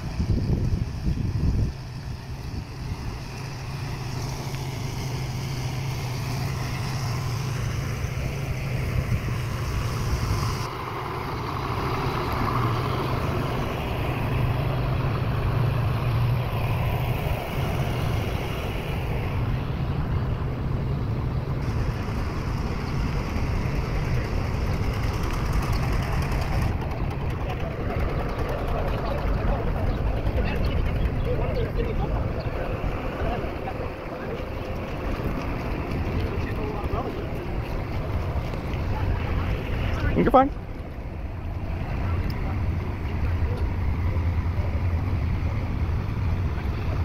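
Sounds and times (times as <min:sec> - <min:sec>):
vehicle engine idling: 0:00.0 - 0:47.0.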